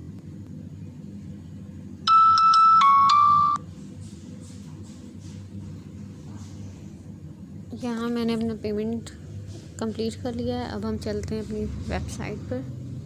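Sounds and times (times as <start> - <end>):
electronic phone chime: 2.1 - 3.6.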